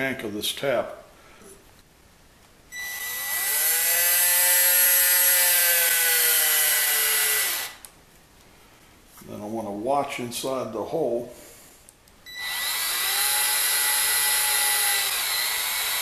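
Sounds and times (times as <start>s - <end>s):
cordless drill motor whine: 2.8s - 7.9s, 12.3s - 16.0s.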